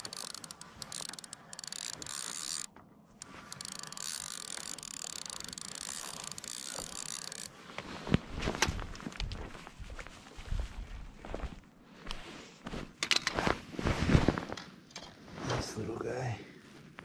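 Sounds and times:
fishing reel gears whirring: 0:00.0 - 0:07.6.

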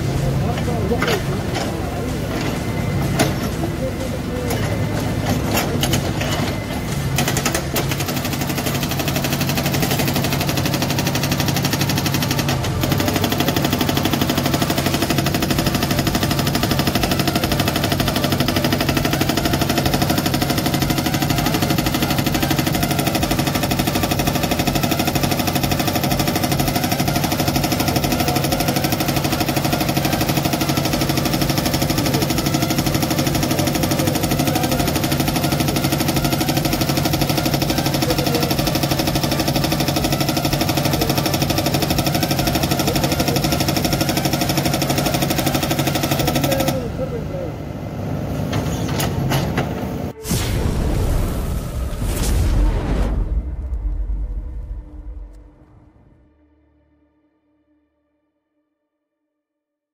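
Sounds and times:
diesel engine under load: 0:00.0 - 0:51.9
hydraulic breaker hammering rock: 0:04.5 - 0:46.9.

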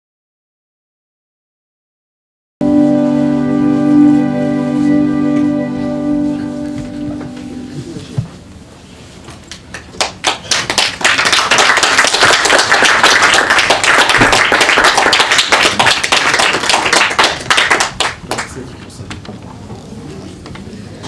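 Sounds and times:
small audience applauding: 0:09.5 - 0:19.0.

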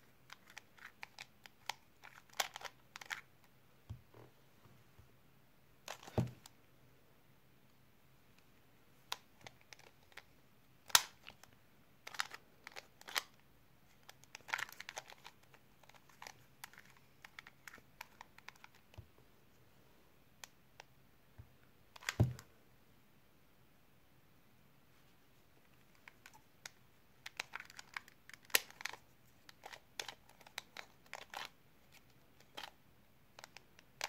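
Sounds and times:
plastic puzzle cube clicking: 0:00.3 - 0:03.3, 0:09.1 - 0:11.5, 0:12.1 - 0:13.4, 0:14.0 - 0:19.0, 0:26.0 - 0:34.0.

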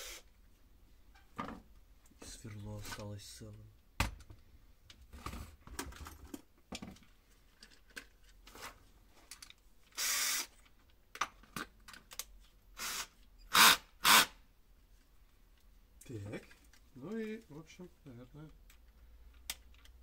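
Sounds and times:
short hiss-like bursts: 0:00.0 - 0:00.3, 0:10.0 - 0:10.5.

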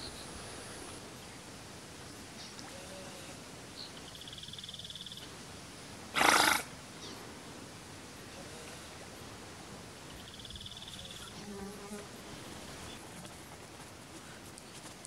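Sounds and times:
otter snorting: 0:06.2 - 0:06.7.

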